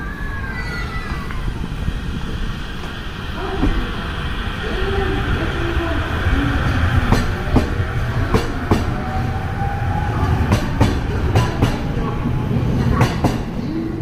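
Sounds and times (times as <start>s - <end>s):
train rumbling: 0.0s - 14.0s
wheels clacking over rail joints: 5.3s - 9.2s, 10.0s - 13.6s.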